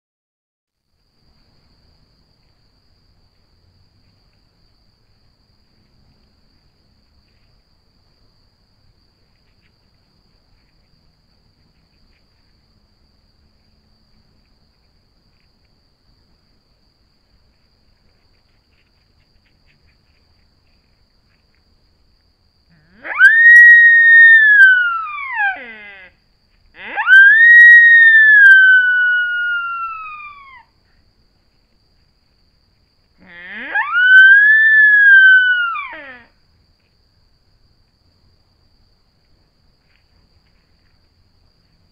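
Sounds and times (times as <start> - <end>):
deer whistling calls: 22.8 - 26.1, 26.8 - 30.7, 33.2 - 36.3.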